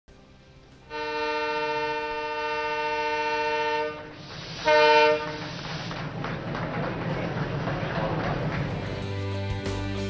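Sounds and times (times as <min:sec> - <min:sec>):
locomotive air horn blasts: 0:00.9 - 0:05.7.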